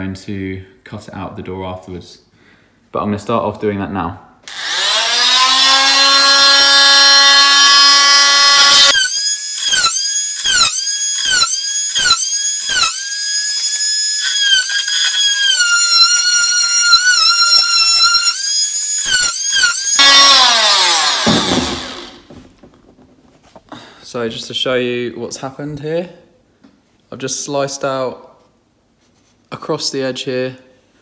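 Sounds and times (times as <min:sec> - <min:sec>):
oscillating multi-tool cutting wood: 0:04.5 - 0:22.3.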